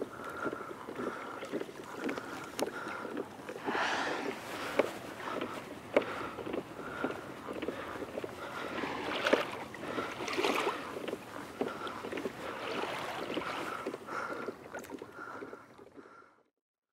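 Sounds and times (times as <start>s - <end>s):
water lapping against kayak hull: 0.0s - 16.3s
small sharp splashes: 8.7s - 11.0s.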